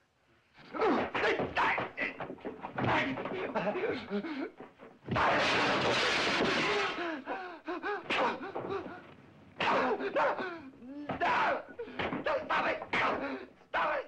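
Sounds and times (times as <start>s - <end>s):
men gasping and crying out: 6.4s - 12.2s.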